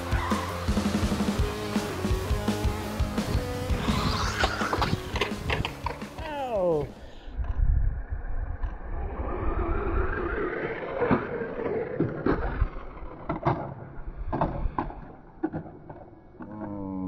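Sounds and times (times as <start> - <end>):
tyre noise on concrete: 0.0 - 6.9.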